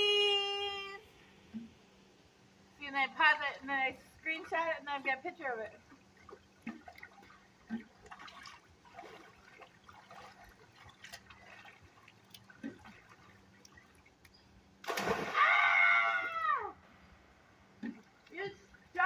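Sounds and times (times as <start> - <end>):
loud splash of jump: 14.8 - 16.2
loud high-pitched shout: 15.3 - 16.8.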